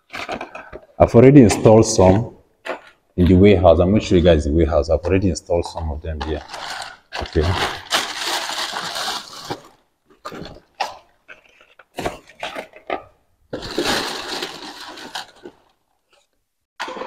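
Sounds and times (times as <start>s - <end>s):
plastic bags rustling: 5.7s - 17.0s.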